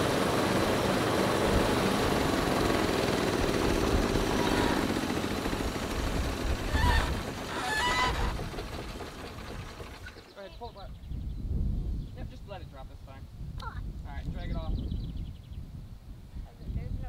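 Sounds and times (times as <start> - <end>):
sawmill engine running: 0.0 - 10.8.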